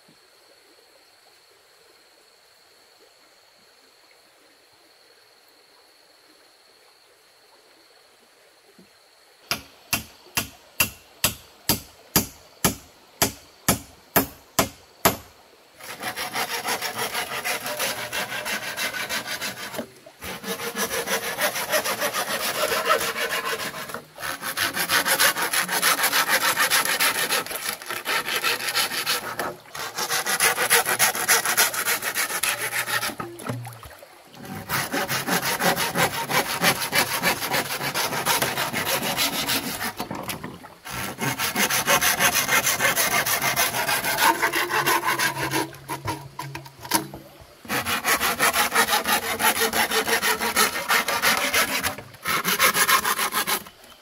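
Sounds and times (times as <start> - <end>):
hand saw cutting wood: 15.8 - 33.6, 34.4 - 53.8.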